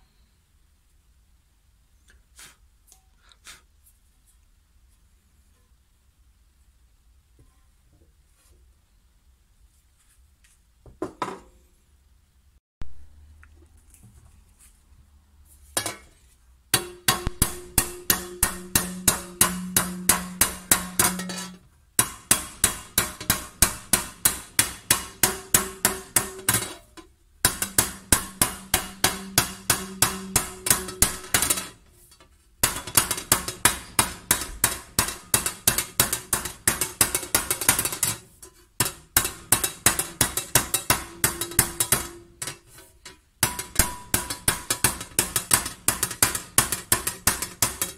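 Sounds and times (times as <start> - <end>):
hammer striking copper tray: 16.7 - 31.8, 32.6 - 47.9.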